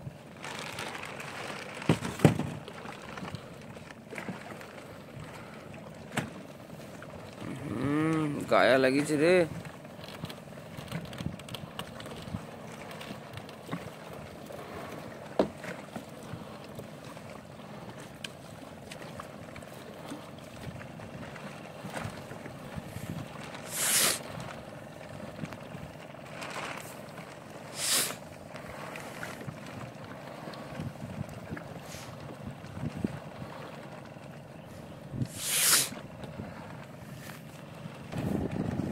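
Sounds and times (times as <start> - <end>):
net and floats knocking: 0.4 - 3.4
short rushes of noise: 23.6 - 24.2, 27.7 - 28.2, 35.3 - 36.0.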